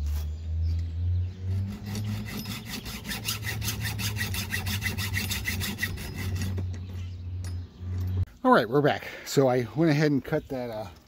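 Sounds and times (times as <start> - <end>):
hacksaw cutting: 1.4 - 6.7.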